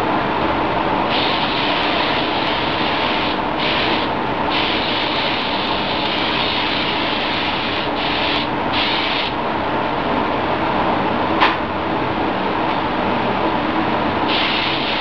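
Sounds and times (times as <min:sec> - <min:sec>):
steady hum: 0:00.0 - 0:15.0
spray gun hissing: 0:01.1 - 0:09.4, 0:14.3 - 0:15.0.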